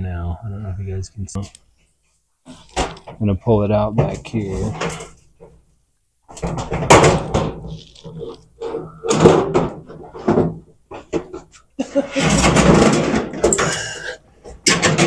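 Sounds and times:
sheet metal clanking and rattling: 4.0 - 5.5, 6.3 - 11.5, 12.1 - 15.0.

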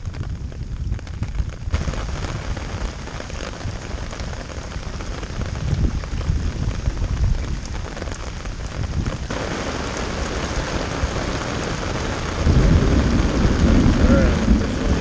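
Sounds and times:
heavy rain: 0.0 - 15.0
low rumble of thunder: 8.6 - 15.0.

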